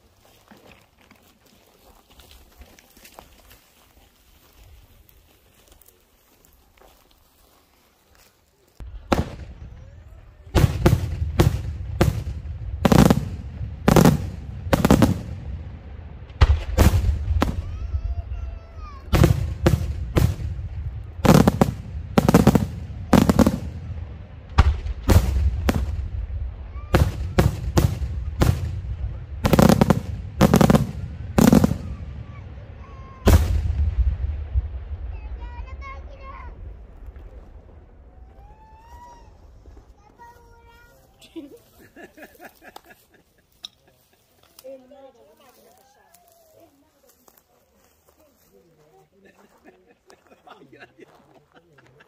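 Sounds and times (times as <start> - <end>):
low rumbling echo: 8.8 - 40.0
firework shells bursting: 21.2 - 23.8.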